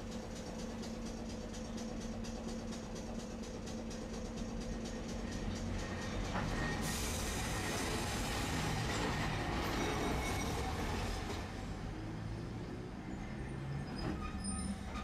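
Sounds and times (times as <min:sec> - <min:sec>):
tram wheels on rails: 0:00.0 - 0:15.0.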